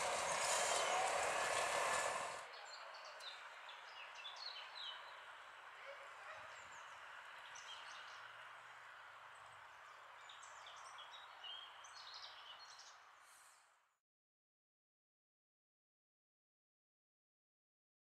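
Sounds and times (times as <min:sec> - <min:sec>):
small birds chirping: 0:06.4 - 0:13.6.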